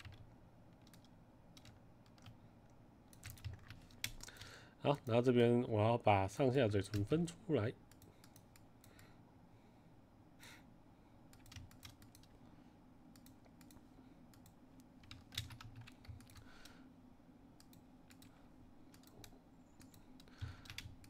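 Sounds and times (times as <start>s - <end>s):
keyboard and mouse clicking: 0.0s - 2.4s, 3.1s - 5.2s, 11.3s - 12.4s, 13.1s - 16.7s, 17.6s - 21.0s
faint low hum: 0.0s - 21.0s.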